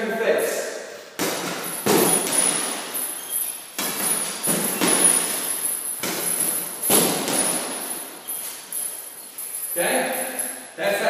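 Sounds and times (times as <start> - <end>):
punches thudding on heavy bag: 1.2 - 3.1, 3.7 - 8.2.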